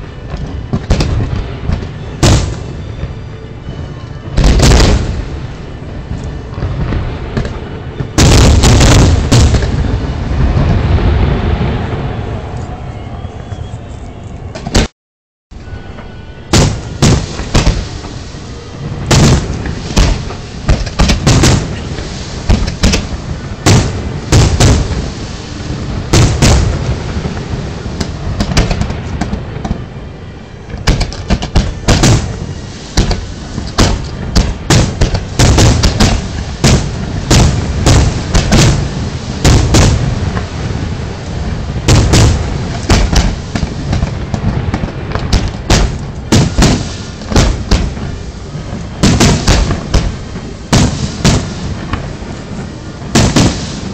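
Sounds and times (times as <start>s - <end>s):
fireworks bangs: 0.0s - 12.8s, 14.5s - 14.9s, 15.6s - 30.0s, 30.6s - 53.9s
low rumble: 0.0s - 14.8s.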